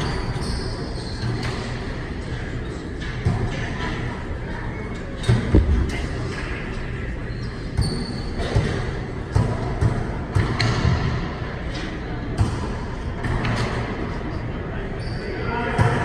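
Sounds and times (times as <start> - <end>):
rubber ball thuds echoing: 5.3 - 6.4.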